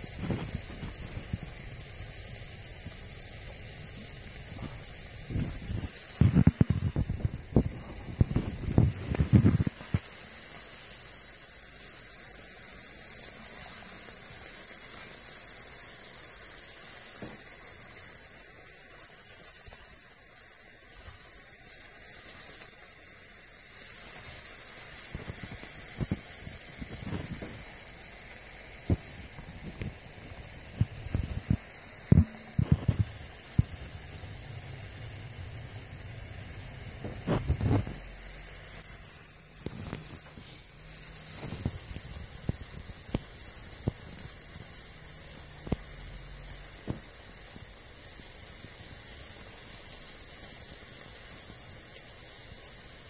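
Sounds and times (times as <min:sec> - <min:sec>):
hot metal sizzling in cheese: 0:00.0 - 0:53.0
loud low pops and thumps: 0:04.5 - 0:10.1, 0:30.7 - 0:34.1, 0:36.9 - 0:38.1.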